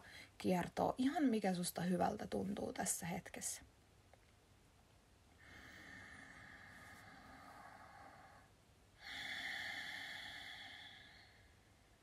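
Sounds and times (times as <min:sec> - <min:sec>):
woman breathing deeply: 0:05.4 - 0:12.0.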